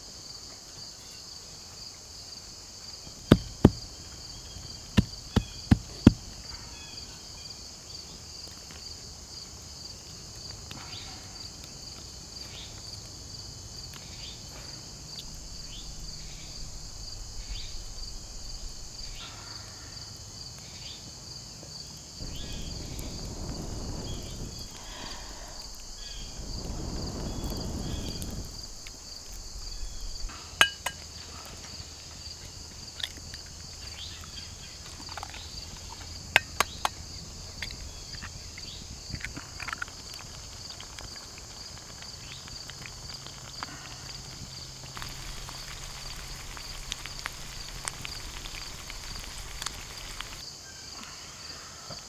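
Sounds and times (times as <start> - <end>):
insects droning: 0.0 - 52.0
low rushing noise: 14.9 - 20.0, 22.2 - 30.3.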